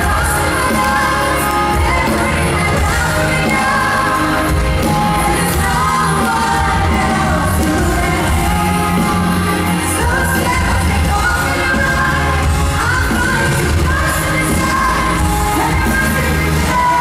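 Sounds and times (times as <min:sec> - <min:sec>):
loud pop music with bass: 0:00.0 - 0:17.0
woman singing into microphone: 0:00.0 - 0:17.0.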